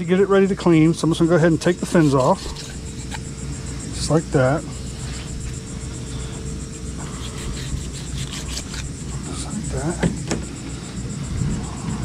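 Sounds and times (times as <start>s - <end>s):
insects chirping: 0.0s - 12.0s
knife scraping on cutting board: 1.8s - 3.3s, 7.0s - 9.0s.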